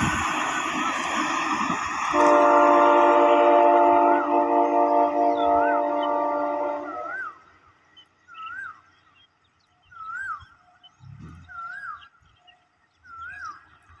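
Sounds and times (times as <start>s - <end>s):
bird whistled call: 5.1s - 7.6s, 8.3s - 9.0s, 9.8s - 13.7s.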